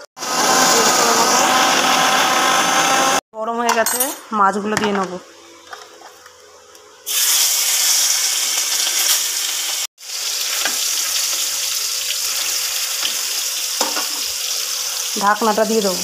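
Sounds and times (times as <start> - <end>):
fish sizzling in hot oil: 7.1 - 16.0.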